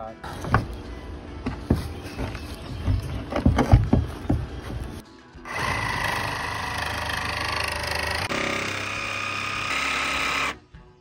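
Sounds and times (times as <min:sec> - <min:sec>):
jigsaw cutting: 0:05.5 - 0:10.6.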